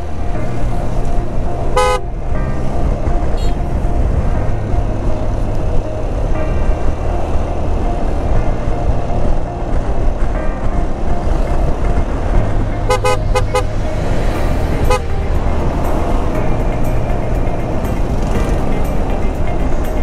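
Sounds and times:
scooter engine drone: 0.0s - 20.0s
wind and road noise: 0.0s - 20.0s
vehicle horn toots: 1.7s - 2.1s, 3.4s - 3.7s, 12.9s - 13.7s, 14.8s - 15.3s.

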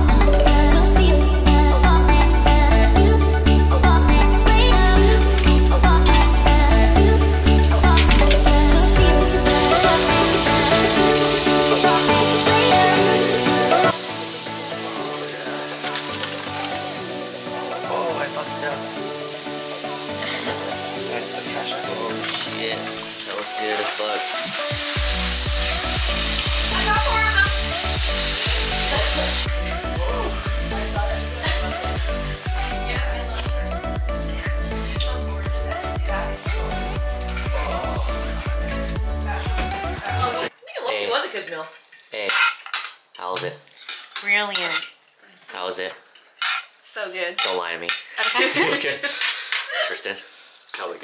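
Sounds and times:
background music with bass beat: 0.0s - 15.7s, 24.6s - 40.5s
mushrooms sizzling in a frying pan: 9.2s - 34.2s
cutlery and plates clinking: 15.2s - 16.9s, 21.9s - 24.6s, 41.4s - 46.8s, 47.4s - 49.7s.

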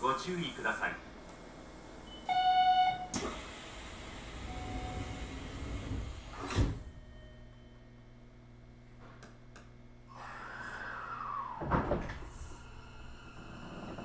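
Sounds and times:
low steady hum: 3.9s - 14.0s
doors shutting with a thud: 4.9s - 6.9s, 11.6s - 12.6s.

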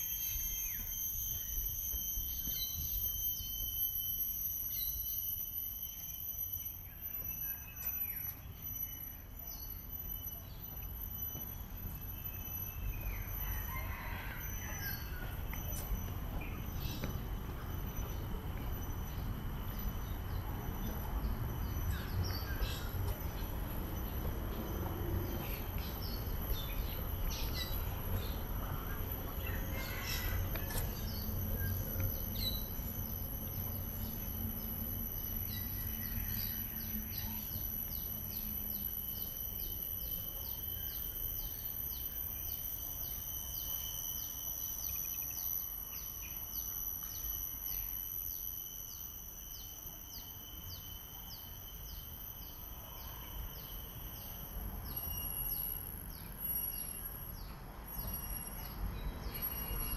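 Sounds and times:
high-pitched insect drone: 0.0s - 59.9s.

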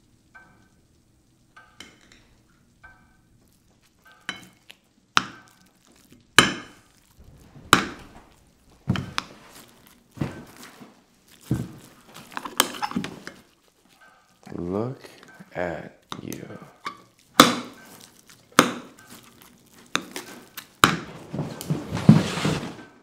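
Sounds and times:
heavy echoing thuds: 7.1s - 11.8s.

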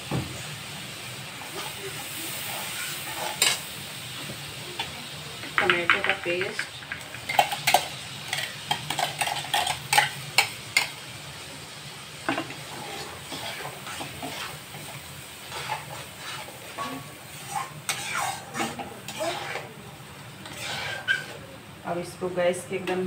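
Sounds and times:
paste sizzling in hot oil: 0.0s - 21.9s
steel spoon scraping and clinking: 15.5s - 19.7s, 20.4s - 21.4s.

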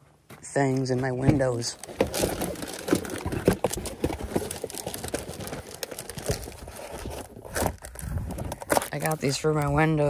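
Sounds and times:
window covers crinkling: 1.4s - 8.0s.

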